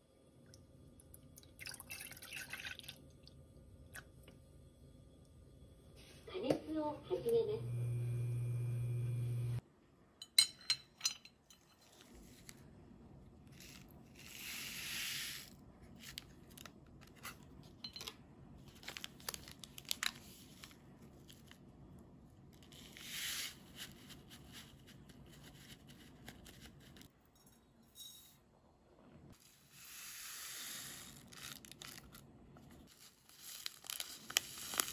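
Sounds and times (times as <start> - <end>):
coffee granules rustling hiss: 13.5 - 15.6, 29.4 - 32.0, 32.9 - 34.9.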